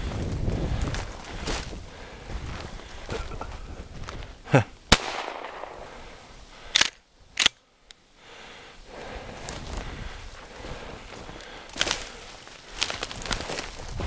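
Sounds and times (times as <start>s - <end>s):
gunshot: 4.9s - 5.9s
sharp cracks: 4.9s - 7.6s.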